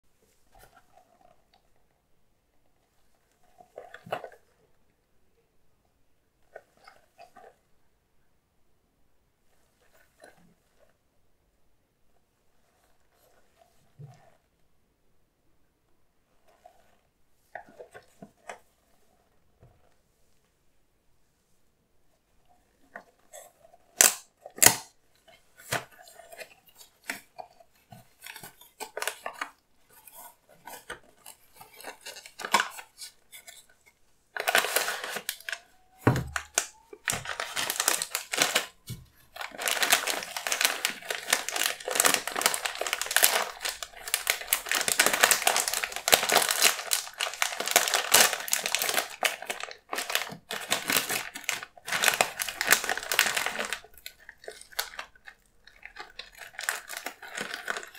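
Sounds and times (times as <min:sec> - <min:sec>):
foil bag crinkling: 0:28.1 - 0:33.7, 0:34.3 - 0:57.9.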